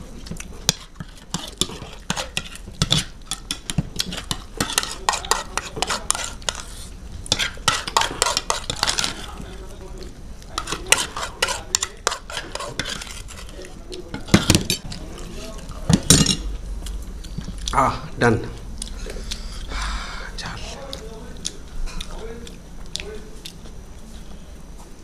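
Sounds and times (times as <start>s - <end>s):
close-miked eating sounds: 0.0s - 25.0s
metal spoons scraping paper plates: 0.7s - 9.6s, 10.5s - 16.5s.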